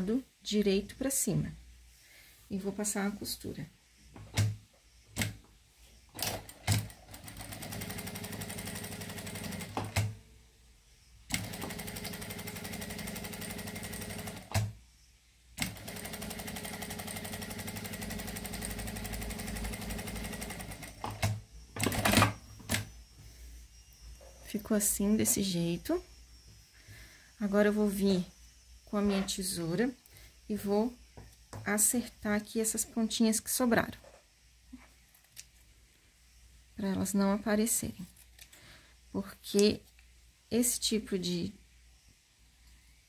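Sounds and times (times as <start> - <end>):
sewing machine stitching: 6.2 - 10.1, 11.3 - 14.7, 15.6 - 22.3.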